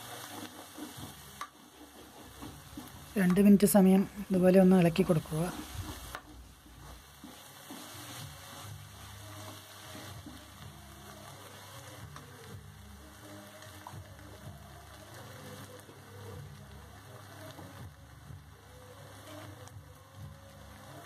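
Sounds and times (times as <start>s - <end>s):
ladle scraping a pan: 0.0s - 3.1s
faint background music: 0.0s - 21.0s
food sizzling in oil: 0.0s - 21.0s.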